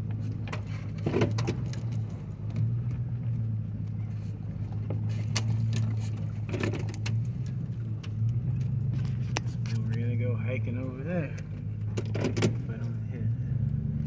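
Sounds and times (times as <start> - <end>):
vehicle engine and road noise: 0.0 - 14.0.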